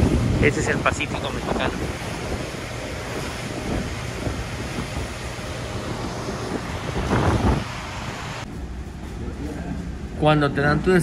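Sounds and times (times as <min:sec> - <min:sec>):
rushing sea water: 0:00.0 - 0:08.5
wind buffeting microphone: 0:00.0 - 0:10.2.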